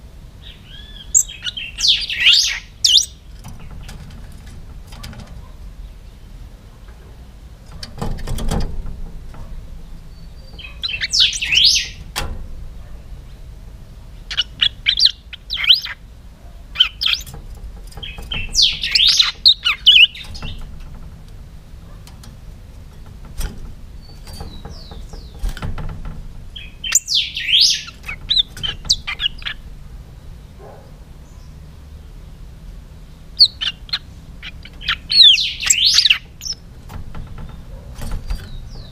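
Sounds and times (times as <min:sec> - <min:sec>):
songbird whistling: 0:00.4 - 0:03.2, 0:10.3 - 0:12.0, 0:14.3 - 0:16.0, 0:18.4 - 0:20.2, 0:26.6 - 0:29.6, 0:34.7 - 0:36.6.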